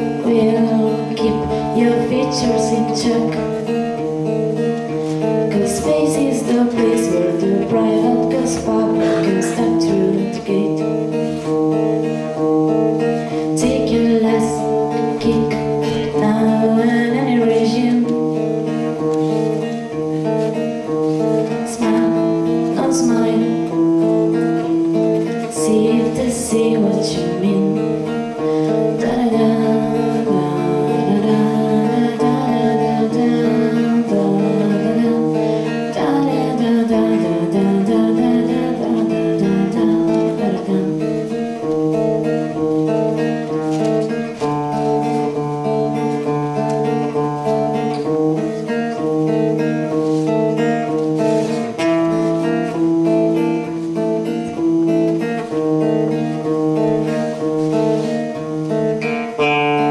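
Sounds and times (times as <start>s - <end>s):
woman singing: 0.0s - 4.3s, 5.2s - 19.9s, 20.5s - 49.9s
acoustic guitar: 0.0s - 59.9s.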